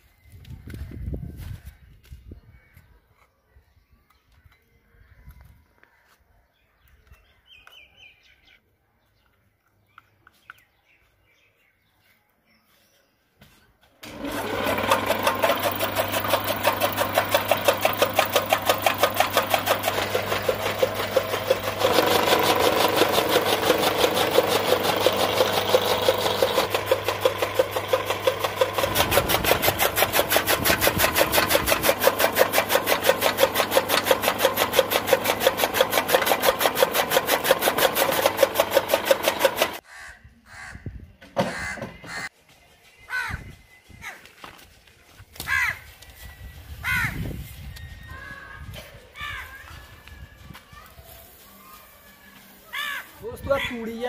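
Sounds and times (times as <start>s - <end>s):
chaff cutter clattering: 14.0s - 39.8s
motor hum: 14.0s - 39.8s.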